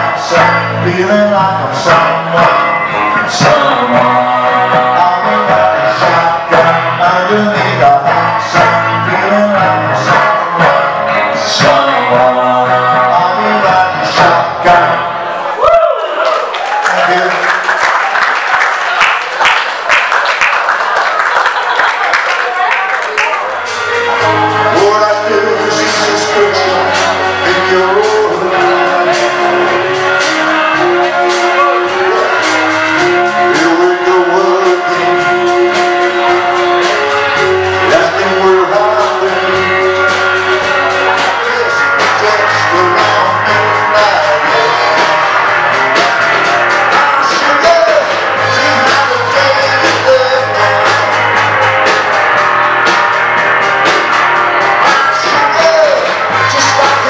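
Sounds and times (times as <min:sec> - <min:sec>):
drums with steady beat: 0:00.0 - 0:14.9, 0:23.2 - 0:57.0
person singing: 0:00.0 - 0:15.3, 0:22.5 - 0:52.6, 0:53.3 - 0:57.0
electric guitars: 0:00.0 - 0:57.0
rock band playing: 0:00.0 - 0:57.0.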